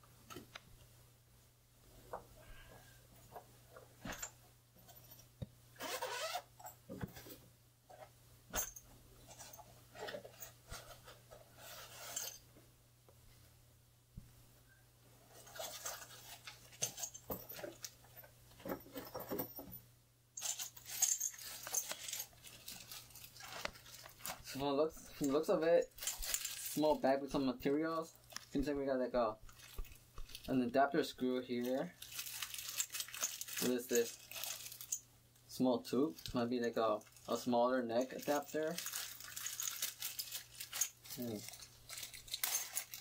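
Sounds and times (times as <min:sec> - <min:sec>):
packaging rustling: 0:20.5 - 0:24.5, 0:25.9 - 0:26.9, 0:29.5 - 0:30.6, 0:31.7 - 0:35.0, 0:38.2 - 0:43.0
plastic bag crinkling: 0:20.5 - 0:24.5, 0:25.9 - 0:27.0, 0:29.5 - 0:30.6, 0:31.7 - 0:35.0, 0:38.0 - 0:43.0.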